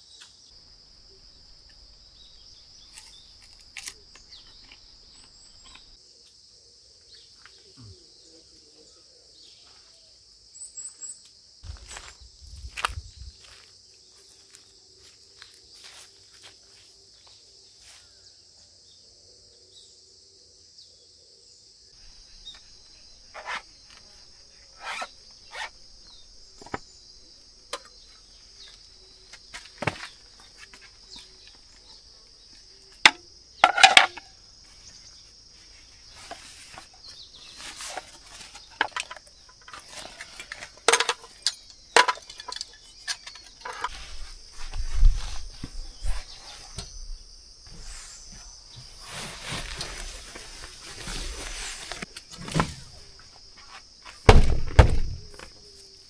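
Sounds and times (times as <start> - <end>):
insects chirring: 0.0 - 56.0
camp cookware clinking and rattling: 33.1 - 34.2, 38.4 - 44.0.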